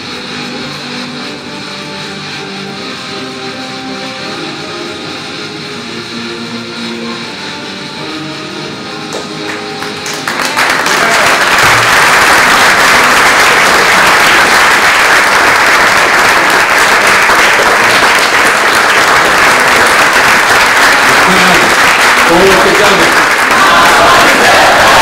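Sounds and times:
audience applause: 9.1s - 25.0s.

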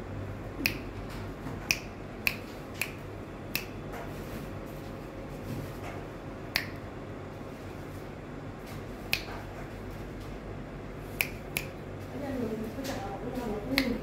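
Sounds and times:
steady low hum: 0.0s - 14.0s
fingers snapping: 0.6s - 0.9s, 1.6s - 3.8s, 6.5s - 6.9s, 9.1s - 9.4s, 11.1s - 11.8s, 13.7s - 14.0s.

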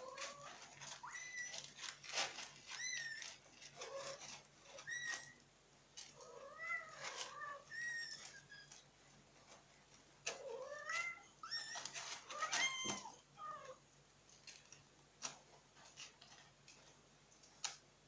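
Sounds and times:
clicks in cat litter: 0.0s - 13.2s, 14.2s - 17.9s
scratching in cat litter: 0.0s - 17.8s.

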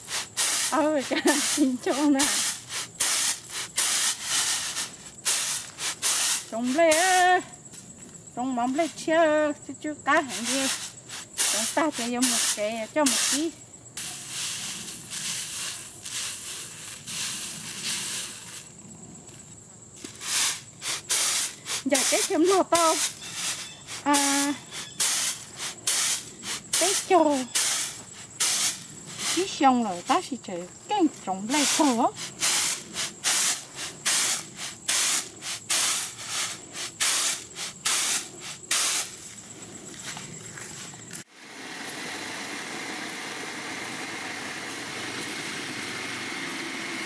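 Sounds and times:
rice swishing in woven tray: 0.0s - 7.2s, 10.3s - 18.7s, 31.6s - 41.0s.

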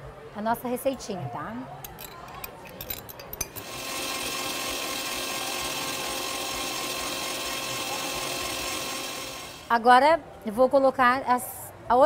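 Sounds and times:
stand mixer motor whine: 3.6s - 9.7s.

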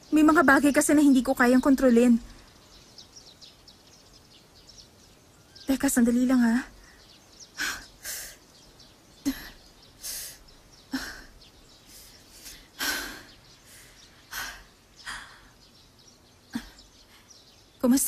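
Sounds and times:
woman breathing hard: 9.2s - 15.6s.

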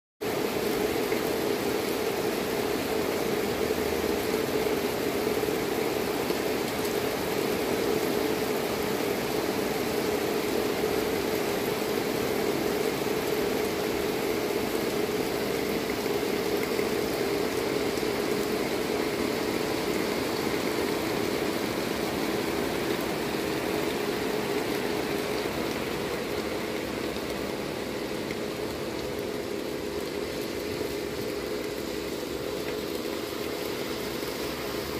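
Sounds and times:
heavy rain on pavement and cars: 0.2s - 34.9s.

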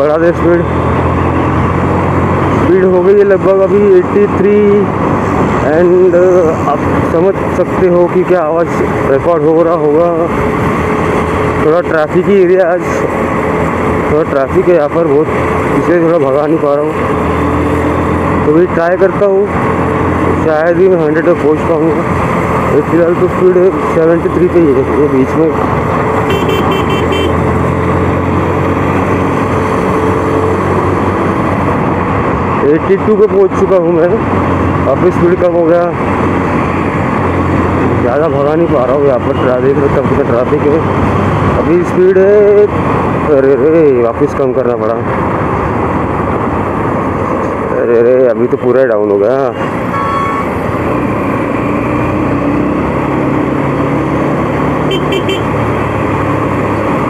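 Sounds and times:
engine hum: 0.0s - 57.0s
motorcycle road noise: 0.0s - 57.0s
short high beeps: 49.9s - 50.5s.

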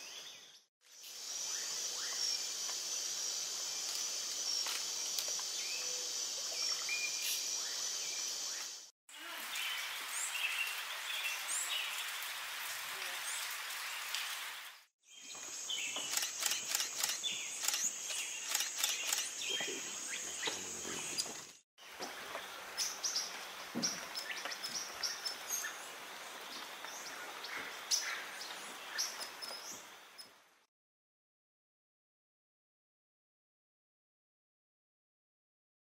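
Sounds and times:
small birds chirping: 15.0s - 21.6s
rapid sharp ticks: 16.1s - 19.3s.

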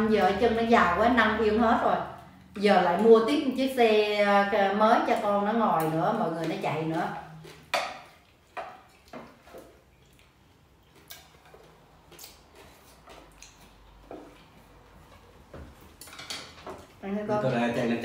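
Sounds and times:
chopsticks clicking on plates: 15.9s - 16.9s.

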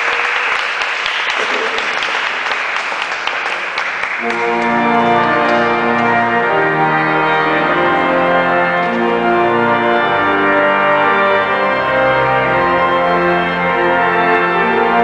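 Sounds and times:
guests applauding: 0.0s - 5.9s
organ playing sustained chords: 4.2s - 15.0s.

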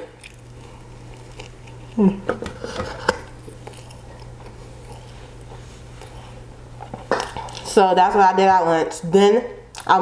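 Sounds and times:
person biting and chewing: 0.0s - 7.7s.

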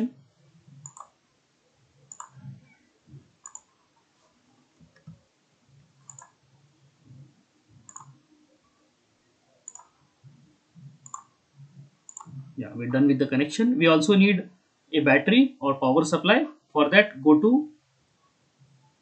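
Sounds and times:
faint computer mouse clicks: 0.8s - 1.2s, 2.1s - 2.8s, 3.4s - 3.7s, 6.1s - 6.4s, 7.8s - 8.2s, 9.6s - 9.9s, 11.0s - 11.3s, 12.1s - 12.4s.

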